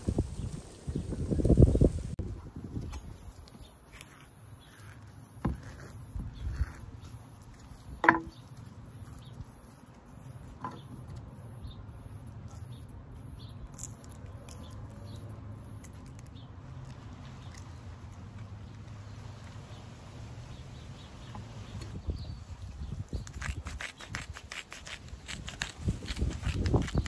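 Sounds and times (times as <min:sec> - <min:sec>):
low outdoor background: 0:00.0 - 0:27.0
avocado being twisted apart: 0:23.1 - 0:27.0.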